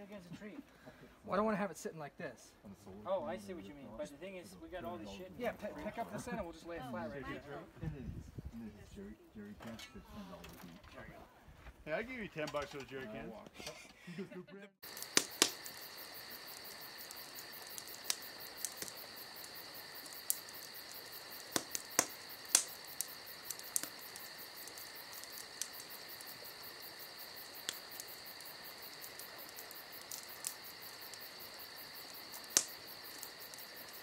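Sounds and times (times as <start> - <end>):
campfire crackling and popping: 14.8 - 34.0
crickets chirping: 14.8 - 34.0.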